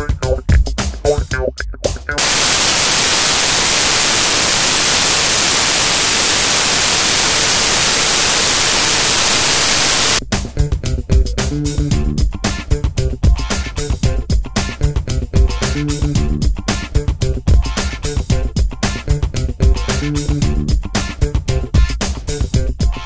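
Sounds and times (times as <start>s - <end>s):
loud static hiss: 2.2s - 10.2s.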